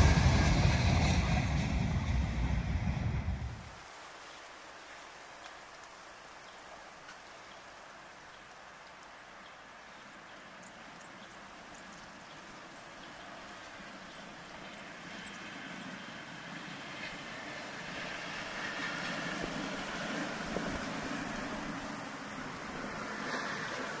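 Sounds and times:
vehicle driving past: 0.0s - 3.7s.

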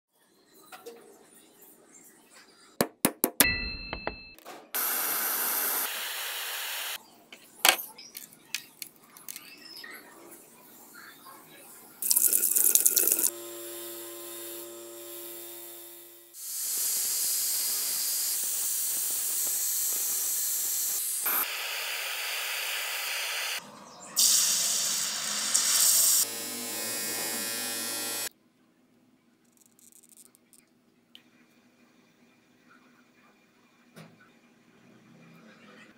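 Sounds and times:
electric motor hum: 4.8s - 7.0s, 13.0s - 23.6s, 24.2s - 28.3s
bench grinder wheel humming: 13.0s - 16.4s, 24.9s - 28.3s
angle grinder grinding steel: 13.1s - 23.6s, 24.2s - 28.3s.

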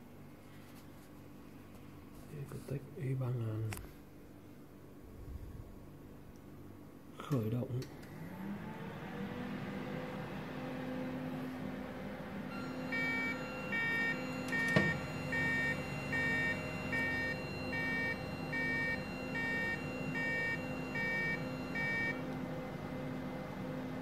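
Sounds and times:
machine humming: 7.9s - 24.0s
two-tone warning beeps: 12.6s - 22.2s.

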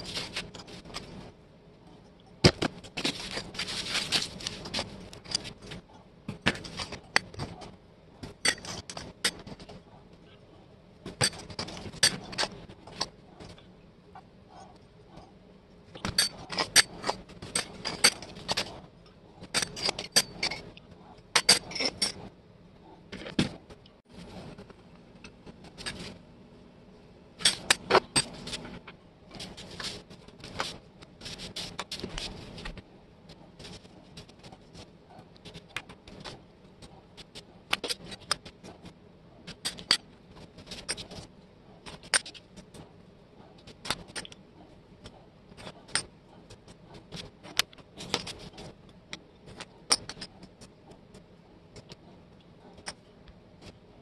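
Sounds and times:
small metal parts clinking: 16.0s - 18.7s, 19.4s - 22.3s.

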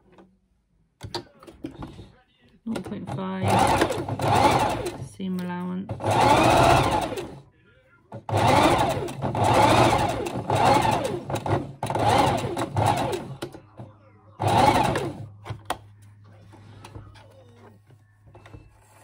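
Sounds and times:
sewing machine stitching: 2.7s - 5.1s, 5.9s - 7.4s, 8.2s - 13.6s, 14.4s - 15.3s.

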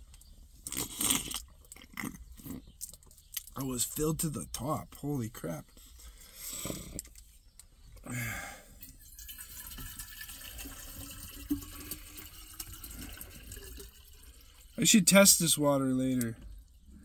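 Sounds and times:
water pouring into a jug: 8.8s - 15.4s.

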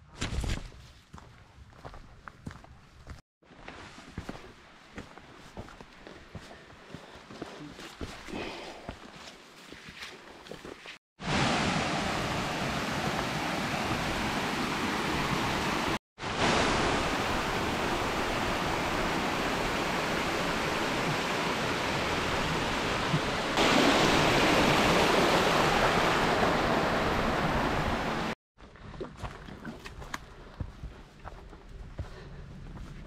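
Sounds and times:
rushing water: 11.2s - 28.4s.

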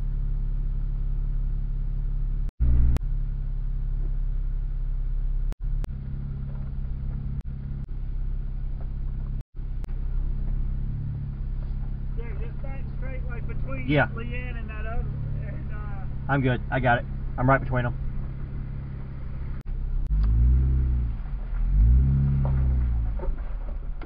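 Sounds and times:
engine running with low hum: 0.0s - 24.0s.

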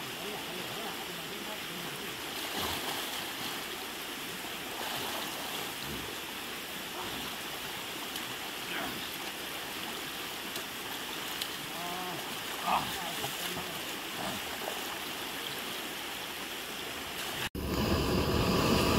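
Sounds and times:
water rushing over stones: 0.0s - 17.6s.

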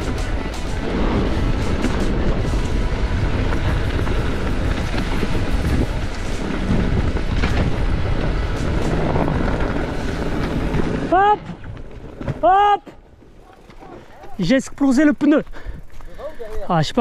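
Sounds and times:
wind rush on microphone: 0.0s - 12.5s
tyres rumbling on rock and gravel: 0.0s - 17.0s
bike rattling clicks and knocks: 13.1s - 16.7s.

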